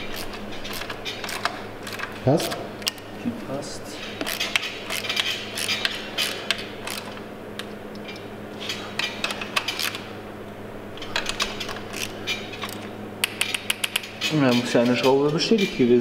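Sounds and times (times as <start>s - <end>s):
steady low hum: 0.0s - 16.0s
hand ratchet clicking: 0.1s - 3.0s, 4.2s - 7.2s, 11.0s - 15.8s.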